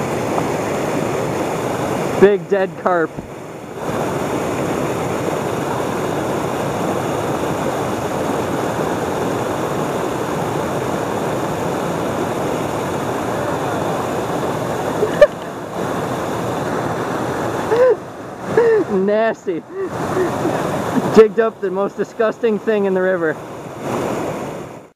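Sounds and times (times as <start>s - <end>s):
water rushing over rock weir: 0.0s - 24.9s.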